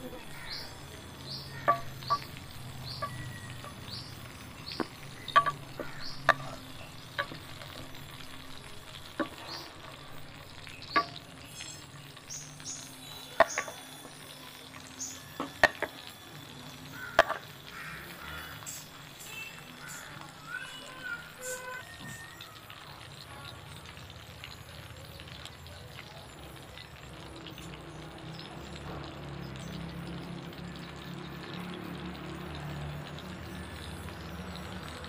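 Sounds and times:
food sizzling in a frying pan: 0:00.0 - 0:35.0
faint high chirp: 0:20.5 - 0:22.7.

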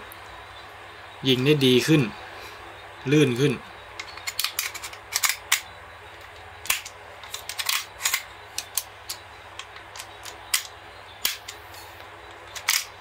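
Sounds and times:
pistol slide metallic clicks: 0:10.0 - 0:11.6.

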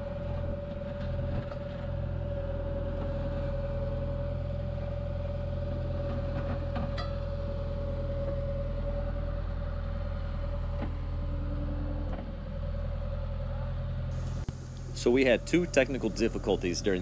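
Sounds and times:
excavator diesel engine running: 0:00.0 - 0:17.0
steady whine: 0:14.1 - 0:17.0.

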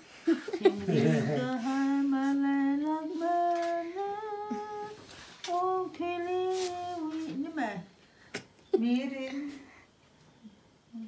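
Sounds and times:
person humming a slow tune: 0:01.0 - 0:07.2.

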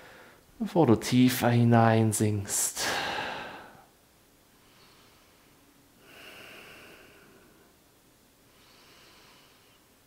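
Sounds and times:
person breathing: 0:00.0 - 0:00.5, 0:02.8 - 0:03.9, 0:04.6 - 0:07.8, 0:08.5 - 0:10.0.

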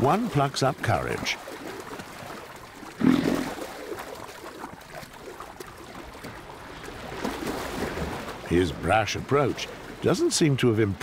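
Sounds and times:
water splashing and sloshing: 0:00.0 - 0:11.0.

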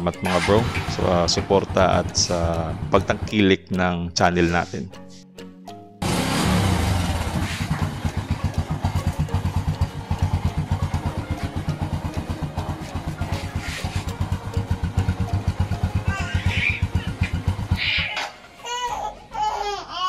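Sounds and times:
motorcycle engine idling: 0:00.3 - 0:03.5, 0:06.0 - 0:18.1.

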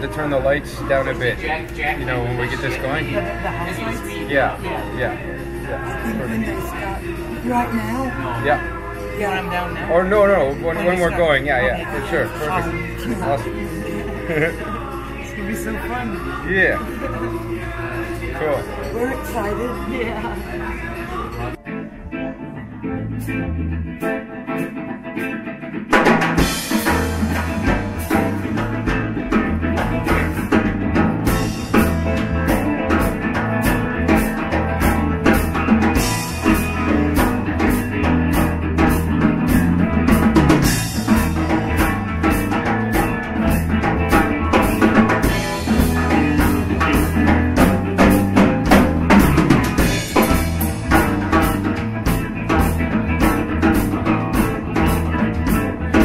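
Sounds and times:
bass guitar: 0:00.0 - 0:56.0
electric guitar: 0:00.0 - 0:56.0
drum kit beat: 0:22.8 - 0:56.0.

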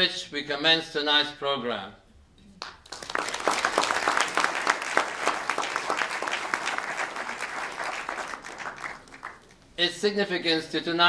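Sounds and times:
audience applauding: 0:02.6 - 0:09.6.

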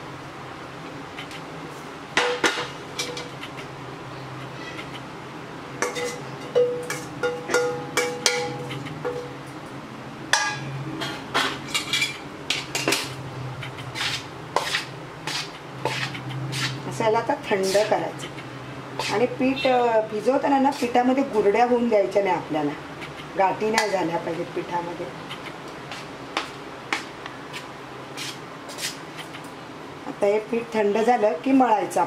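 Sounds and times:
metal pot clanking on bowl: 0:05.8 - 0:09.4, 0:10.3 - 0:13.1.

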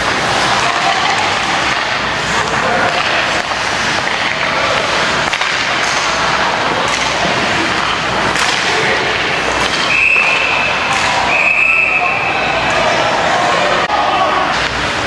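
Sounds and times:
hockey sticks or puck clacking: 0:00.0 - 0:13.0, 0:13.7 - 0:15.0
referee's whistle blast: 0:09.9 - 0:12.5.

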